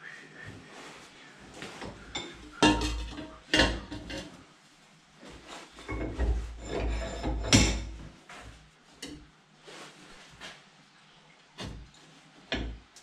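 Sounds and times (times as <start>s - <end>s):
metal tube knocking and scraping: 1.8s - 4.4s, 5.8s - 9.2s.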